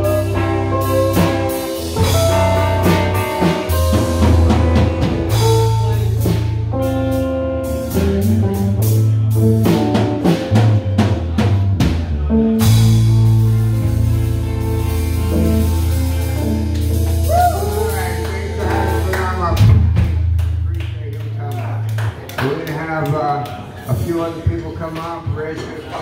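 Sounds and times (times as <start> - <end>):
low bass line: 0.0 - 22.6
amplified electric guitars: 0.0 - 24.0
drum kit beat: 0.0 - 24.7.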